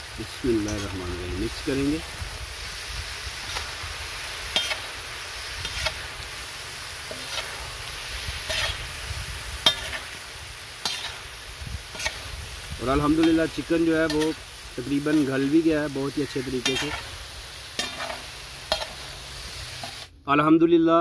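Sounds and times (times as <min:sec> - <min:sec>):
food sizzling: 0:00.0 - 0:20.2
metal spatula scraping pan: 0:04.5 - 0:05.0, 0:05.6 - 0:06.1, 0:07.0 - 0:08.9, 0:09.6 - 0:10.2, 0:10.8 - 0:11.3, 0:11.9 - 0:12.3, 0:16.3 - 0:17.1, 0:17.8 - 0:19.1.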